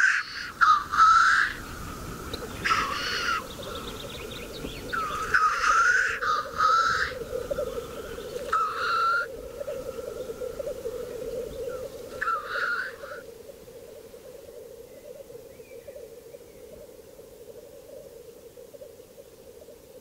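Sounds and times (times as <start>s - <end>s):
harsh bird calls: 0.0s - 13.2s
distant bubbling grouse chorus: 0.0s - 20.0s.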